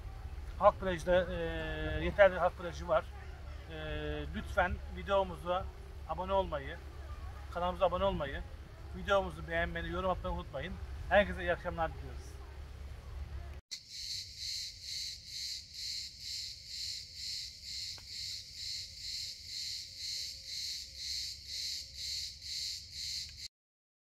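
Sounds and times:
insects chirping: 0:13.7 - 0:23.5.

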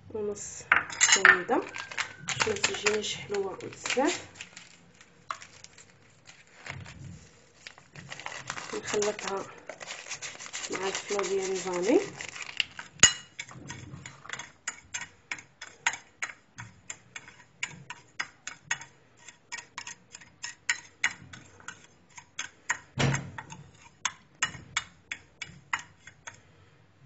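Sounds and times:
metal spoon clinking on glass bowl: 0:00.8 - 0:04.2, 0:13.0 - 0:13.5.

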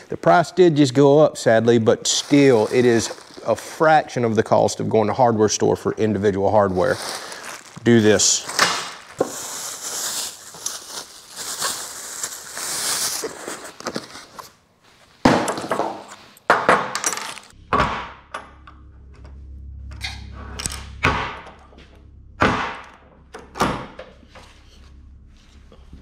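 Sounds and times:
plastic bag crinkling: 0:01.7 - 0:04.9, 0:06.0 - 0:14.5
low hum: 0:17.4 - 0:26.0.

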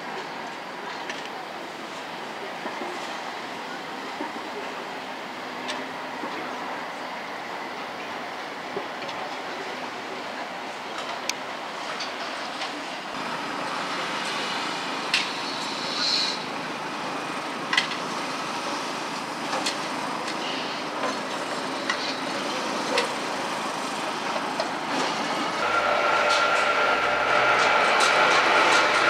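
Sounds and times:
city traffic hum: 0:00.0 - 0:29.0
tram whine: 0:00.0 - 0:29.0
trams running on tracks: 0:00.0 - 0:29.0.

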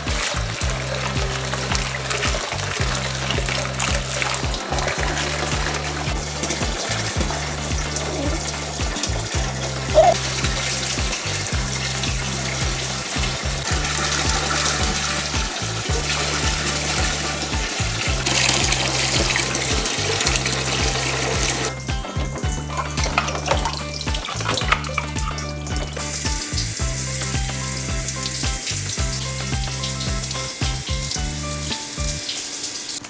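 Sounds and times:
background music with bass line: 0:00.0 - 0:32.3
water hissing from shower head: 0:00.0 - 0:33.0.

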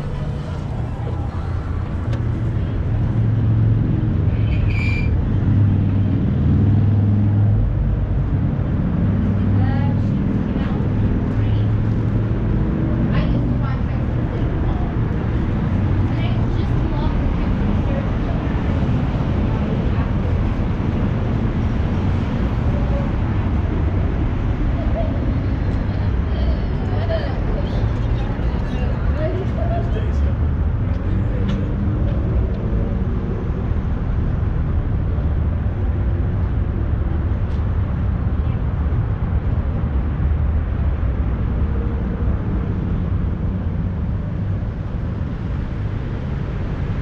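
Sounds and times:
city hum and rumble: 0:00.0 - 0:47.0
high-pitched squeak: 0:04.4 - 0:05.2.

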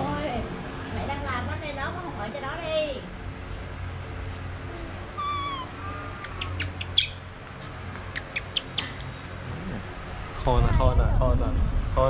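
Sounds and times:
baby monkey calling: 0:04.6 - 0:09.4.

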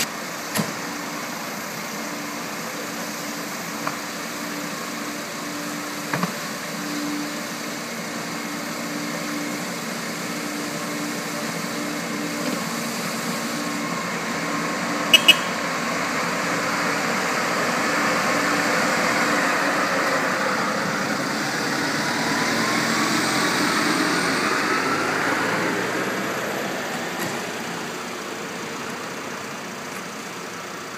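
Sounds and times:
truck diesel engines idling: 0:00.0 - 0:30.9
truck driving past on wet road: 0:08.2 - 0:28.1.

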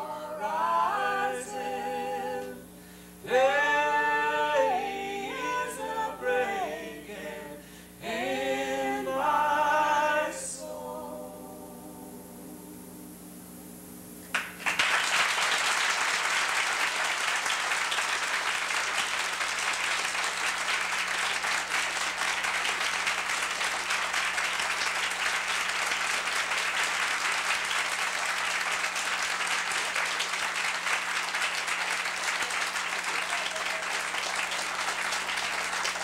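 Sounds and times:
a cappella singing: 0:00.0 - 0:13.3
audience applauding: 0:14.3 - 0:36.0.

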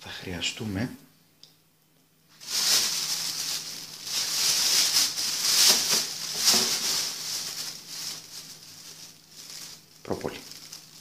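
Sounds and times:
plastic bag crinkling: 0:02.3 - 0:11.0.

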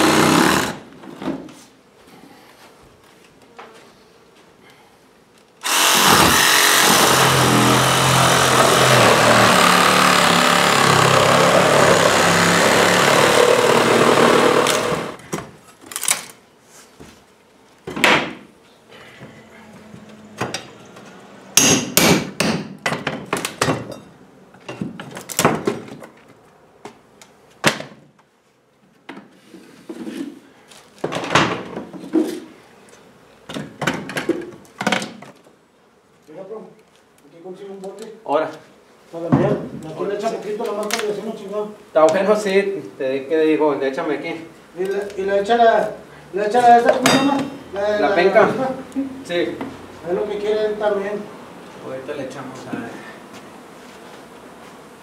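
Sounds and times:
power tool cutting wood floor: 0:00.0 - 0:00.9, 0:05.6 - 0:15.2.

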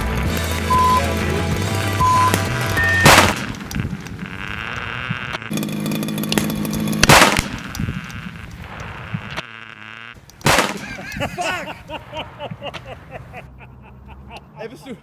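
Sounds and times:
noise between bangs: 0:00.1 - 0:04.3, 0:06.2 - 0:09.5
loud explosive blast: 0:03.0 - 0:03.6.

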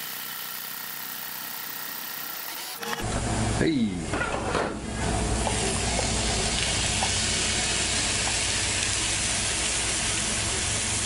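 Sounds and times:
vegetables sizzling in oil: 0:05.2 - 0:11.0.

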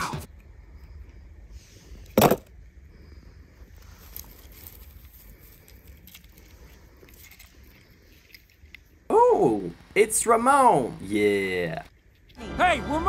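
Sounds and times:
pine needles crackling and rustling: 0:03.7 - 0:09.0.

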